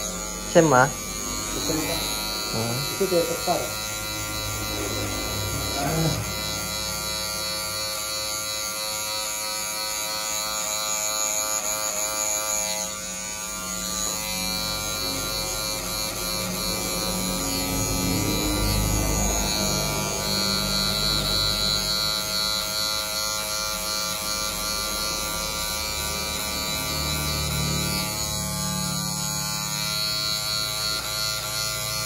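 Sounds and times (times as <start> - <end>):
electric hair clippers buzzing: 0.0 - 32.0.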